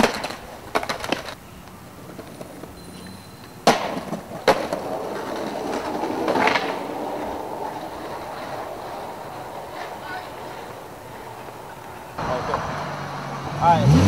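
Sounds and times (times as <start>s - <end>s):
skateboard landing clack: 0.0s - 1.4s, 3.6s - 12.6s
skateboard snap: 0.0s - 1.8s, 3.4s - 8.5s
skateboard knocking on pavement: 0.0s - 12.8s
skateboard scraping a curb: 0.0s - 13.6s
wheels rolling on asphalt: 0.0s - 14.0s.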